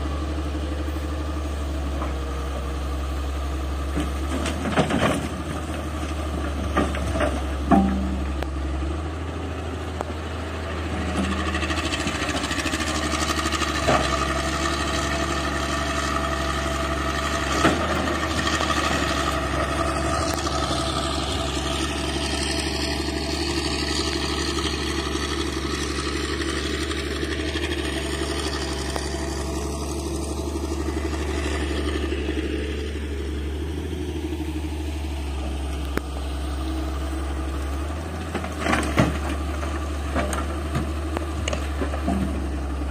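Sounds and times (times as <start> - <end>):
excavator diesel engine running: 0.0 - 42.9.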